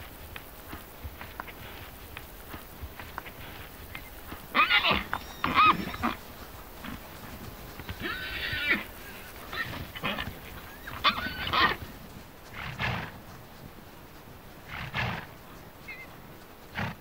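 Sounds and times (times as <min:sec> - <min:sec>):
horses giving high cries: 0:03.0 - 0:13.1, 0:14.7 - 0:16.2.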